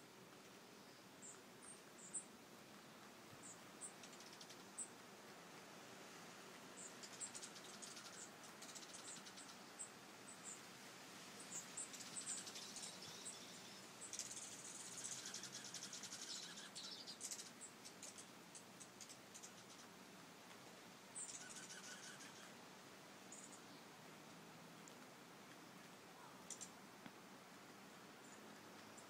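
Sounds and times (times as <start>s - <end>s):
rapid bird twittering: 3.4s - 4.9s, 6.8s - 9.8s, 11.5s - 19.9s, 21.2s - 22.6s, 26.2s - 26.8s
high bird chip calls: 11.5s - 19.9s, 21.2s - 22.6s, 26.2s - 26.8s.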